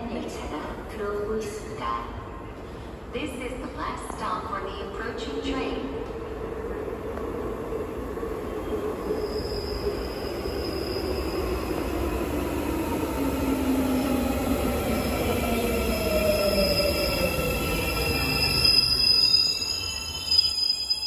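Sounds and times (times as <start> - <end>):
electric train whine: 5.4 - 21.0
train wheel squeal: 8.5 - 12.5, 15.0 - 21.0.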